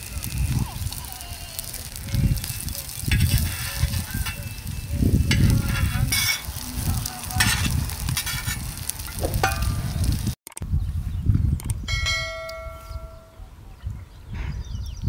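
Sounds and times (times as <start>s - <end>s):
food sizzling in oil: 0.0s - 10.4s
utensil scraping in pan: 0.0s - 10.4s.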